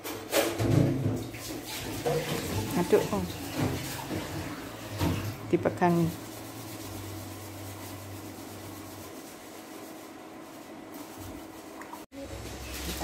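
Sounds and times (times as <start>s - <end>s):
steady low hum: 4.0s - 13.0s.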